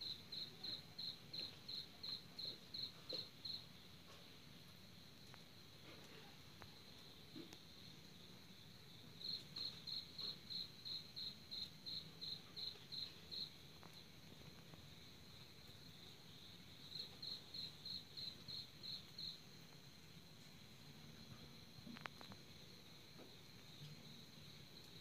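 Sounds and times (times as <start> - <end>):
cricket chirping: 0.0 - 25.0.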